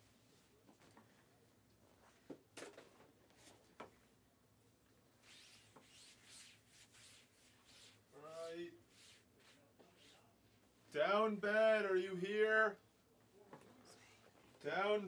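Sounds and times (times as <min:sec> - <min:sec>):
soft rustling and rubbing: 0:03.0 - 0:04.1, 0:05.1 - 0:10.9.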